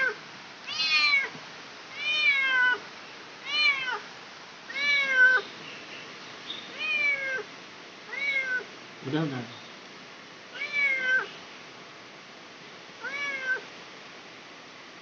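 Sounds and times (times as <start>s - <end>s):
cat meowing: 0.0s - 1.3s, 1.9s - 2.8s, 3.4s - 4.1s, 4.7s - 5.4s, 6.7s - 7.5s, 8.1s - 8.7s, 10.5s - 11.3s, 13.0s - 13.7s.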